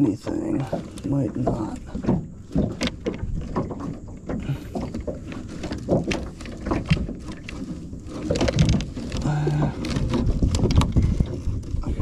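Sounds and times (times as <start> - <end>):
fishing gear knocking and clattering: 0.0 - 12.0.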